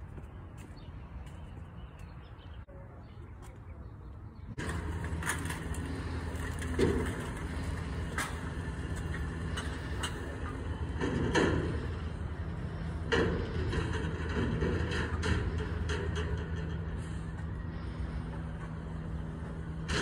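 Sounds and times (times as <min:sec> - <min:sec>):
truck engine running: 0:04.5 - 0:20.0
sharp metal clanks and knocks: 0:06.5 - 0:17.1.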